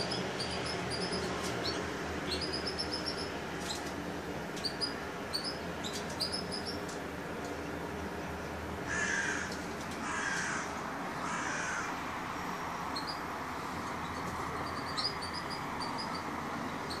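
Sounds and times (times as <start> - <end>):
nestlings begging calls: 0.0 - 3.9, 4.5 - 6.9, 8.9 - 12.0, 12.8 - 17.0.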